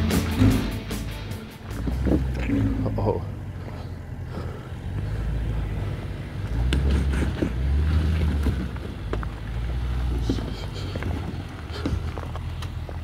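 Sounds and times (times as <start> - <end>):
car engine rumbling: 0.0 - 13.0
loose stones crunching: 6.4 - 13.0.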